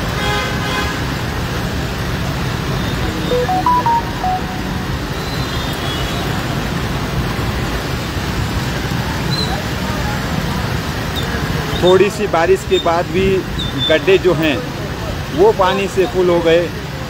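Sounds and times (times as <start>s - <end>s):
traffic on a wet street: 0.0s - 17.0s
short notes stepping in pitch: 3.3s - 5.5s.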